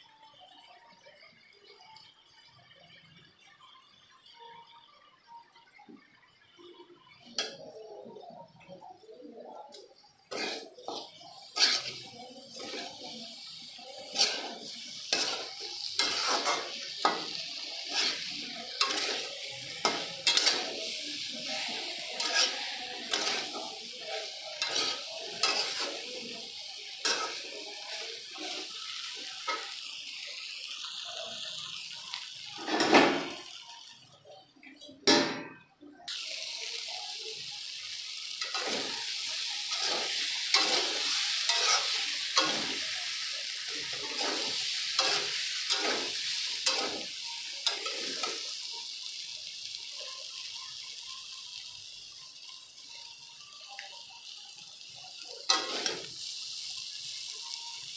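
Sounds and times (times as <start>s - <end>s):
frying sizzle: 0.0s - 57.9s
metal spatula scraping a pan: 10.2s - 26.1s, 26.9s - 29.8s, 32.5s - 33.5s, 38.4s - 48.4s, 55.5s - 56.1s.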